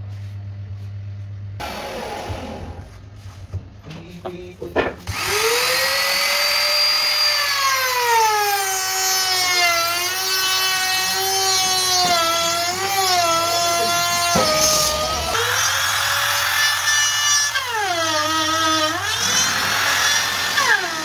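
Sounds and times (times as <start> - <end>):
router motor whine: 5.0 - 21.0.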